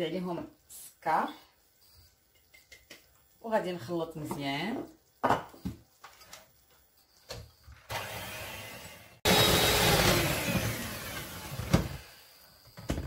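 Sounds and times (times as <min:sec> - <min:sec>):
electric hand mixer beating: 0:07.9 - 0:12.3.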